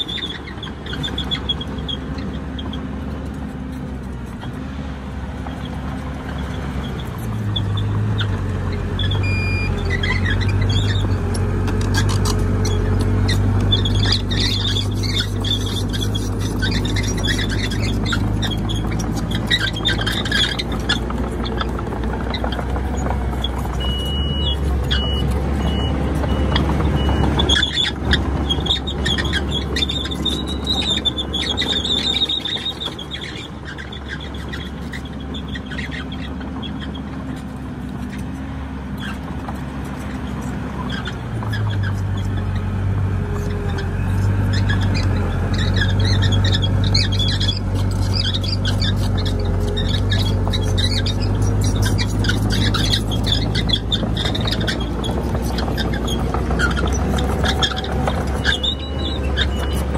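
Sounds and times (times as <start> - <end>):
bulldozer diesel engine: 0.0 - 59.9
squealing tracks: 0.0 - 59.9
short high beeps: 9.2 - 9.8.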